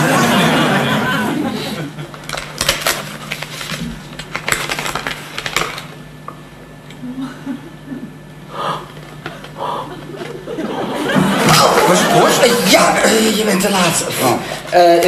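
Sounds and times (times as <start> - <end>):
paper envelope tearing: 2.1 - 6.0.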